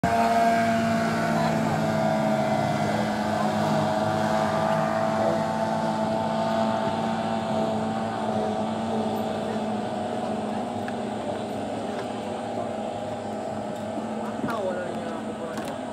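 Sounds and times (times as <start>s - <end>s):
outboard motors whining: 0.0s - 15.9s.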